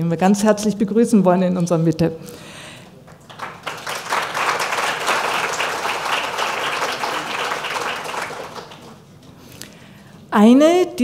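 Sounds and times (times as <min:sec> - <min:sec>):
audience applauding: 0:03.0 - 0:09.0.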